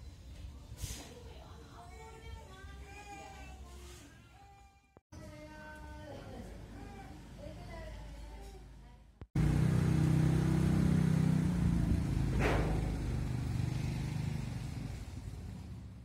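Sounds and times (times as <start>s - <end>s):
short hiss: 0.8s - 1.1s
vehicle engine running: 9.4s - 16.0s.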